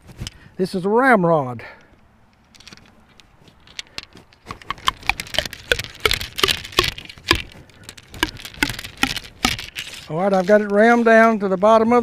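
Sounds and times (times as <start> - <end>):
ramrod knocking in rifle barrel: 4.4 - 9.9.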